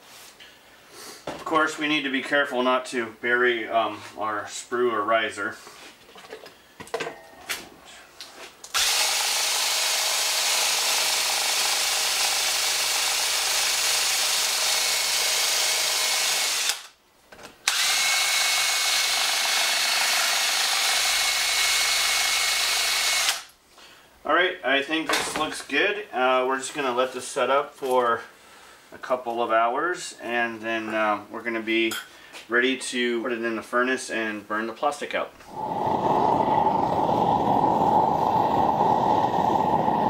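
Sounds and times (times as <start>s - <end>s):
cordless drill whining: 8.7s - 16.9s, 17.6s - 23.5s.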